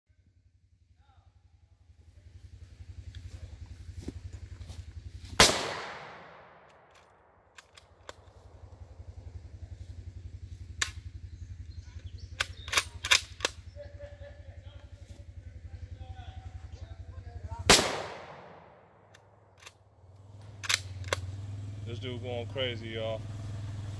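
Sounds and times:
steady low hum: 0.1 - 23.9
sharp clicks and cracks: 5.4 - 8.8, 10.7 - 11.3, 11.9 - 13.7, 17.7 - 21.3
rifle shot echoing: 5.4 - 9.5, 17.7 - 19.7.

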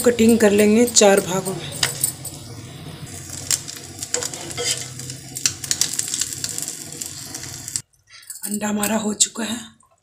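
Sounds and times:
eggs sizzling in hot oil: 0.0 - 7.8
metal knife scraping a pan: 4.1 - 5.1.

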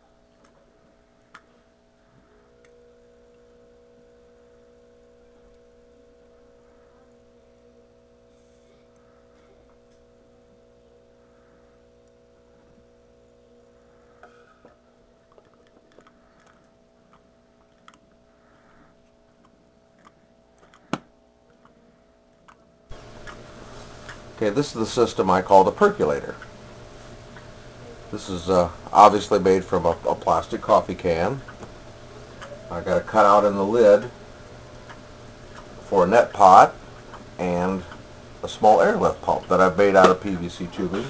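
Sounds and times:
air pump humming: 22.9 - 41.0.

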